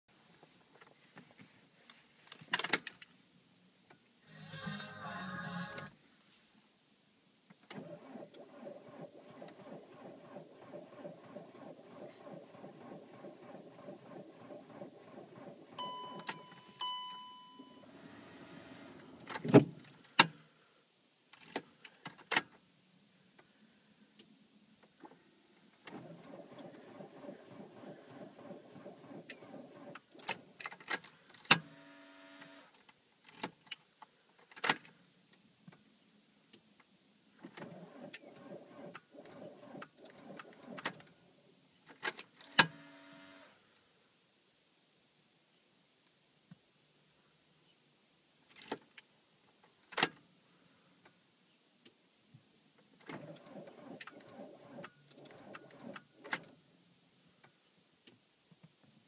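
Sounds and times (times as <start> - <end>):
engine starter cranking: 7.7 - 16.6, 25.8 - 31.6, 37.5 - 41.2, 53.0 - 56.6
steady warning beep: 15.8 - 17.9.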